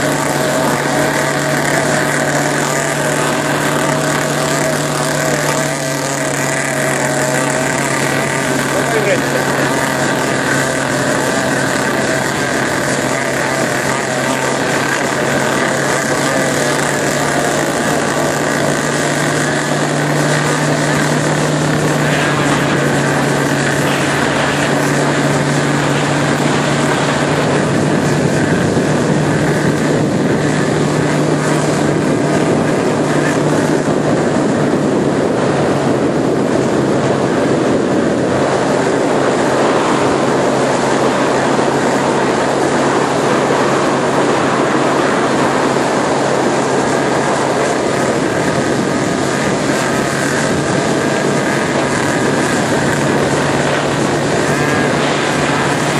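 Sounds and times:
boat engine drone: 0.0s - 55.9s
water rushing along hull: 0.0s - 55.9s.

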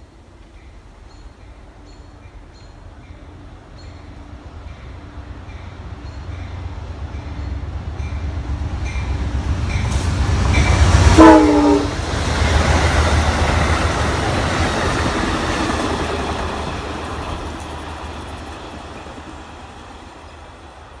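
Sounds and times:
diesel locomotive rumbling past: 0.0s - 21.0s
train cars clickety-clack: 4.7s - 21.0s
train horn blast: 10.5s - 12.0s.

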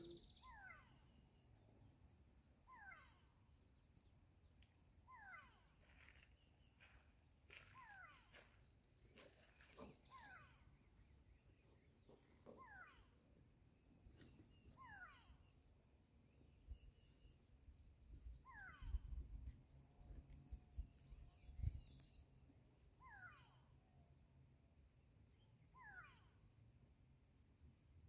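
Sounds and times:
bird calling: 5.1s - 10.8s, 18.3s - 19.2s.

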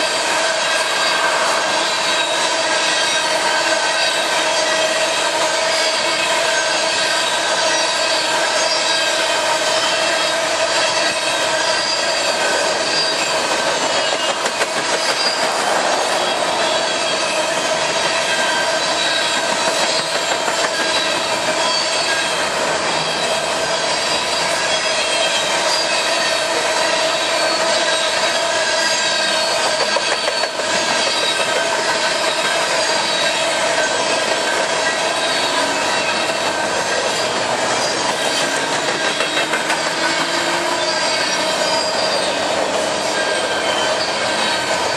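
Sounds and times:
metallic squeal: 0.0s - 44.9s
train wheels clattering on rail: 0.0s - 44.9s.

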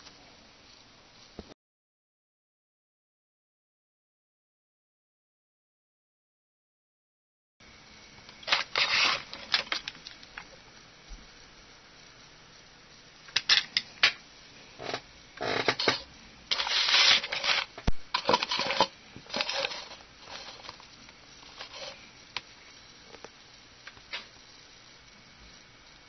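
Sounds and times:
rustling scrapes of handling: 8.4s - 9.9s, 15.4s - 22.1s.

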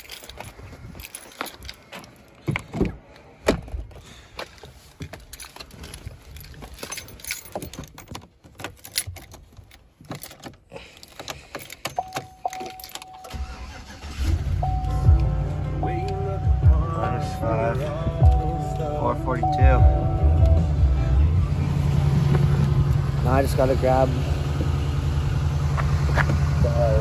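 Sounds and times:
keys jangling: 0.0s - 2.4s, 5.0s - 14.1s
truck warning chime dinging: 11.8s - 21.4s.

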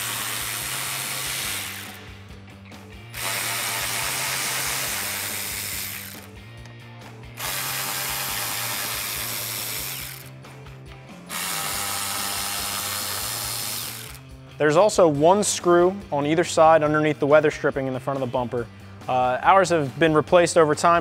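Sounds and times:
electric ratchet spinning screws: 0.0s - 2.3s, 3.1s - 6.4s, 7.4s - 10.4s, 11.2s - 14.4s.

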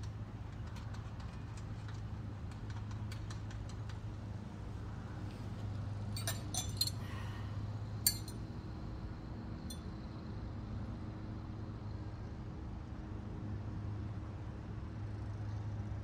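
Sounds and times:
steady low hum: 4.1s - 12.4s
metal tools clinking: 6.1s - 7.2s, 8.0s - 8.4s.

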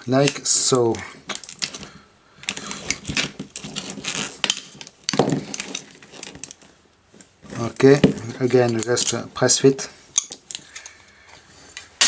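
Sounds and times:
plastic parts clicking and knocking: 1.3s - 6.7s, 10.2s - 11.0s
plastic scraping: 1.3s - 9.3s.

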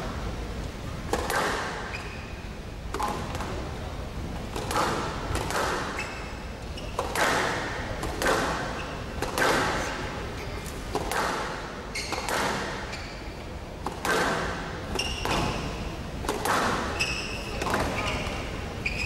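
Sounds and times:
racket striking ball: 1.1s - 1.9s, 4.5s - 6.0s, 7.0s - 9.9s, 10.8s - 12.9s, 13.8s - 16.9s
squash ball hitting walls: 1.1s - 1.9s, 4.6s - 6.0s, 7.0s - 9.9s, 10.9s - 12.9s, 13.8s - 18.3s.

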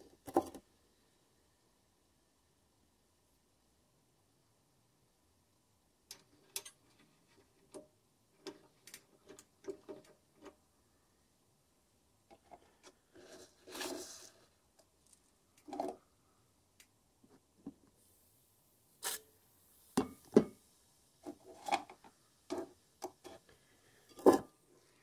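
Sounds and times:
faint clicks and knocks: 6.1s - 10.7s.

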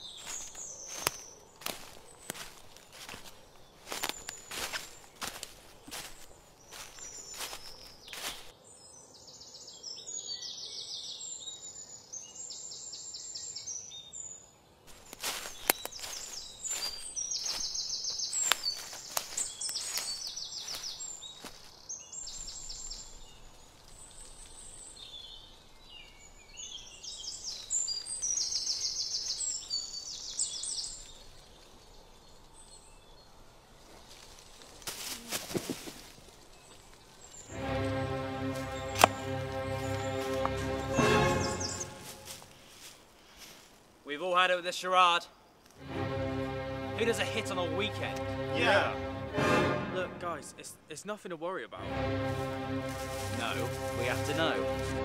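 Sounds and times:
footsteps crunching on dry leaves: 0.0s - 8.6s, 14.9s - 25.1s, 27.0s - 31.6s, 33.8s - 43.9s, 51.9s - 55.0s
songbirds trilling: 0.0s - 34.2s, 35.0s - 43.4s.

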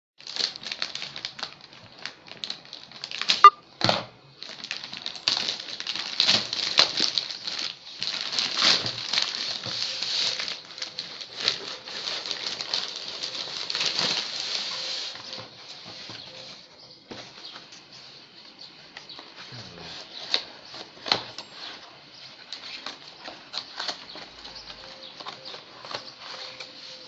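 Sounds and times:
plastic bag crinkling: 0.2s - 3.5s, 4.4s - 16.5s
plastic tearing: 0.2s - 16.4s, 22.5s - 27.0s.

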